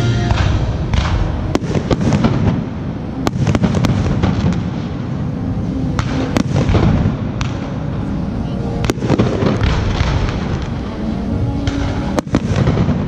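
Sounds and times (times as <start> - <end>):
low din of booms: 0.3 - 5.0, 8.8 - 10.7.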